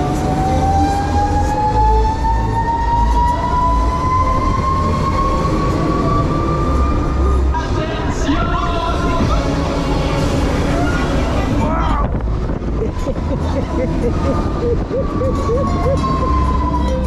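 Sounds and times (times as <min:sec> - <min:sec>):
fairground ride drive whining: 0:00.0 - 0:17.0
low rumble: 0:03.0 - 0:17.0.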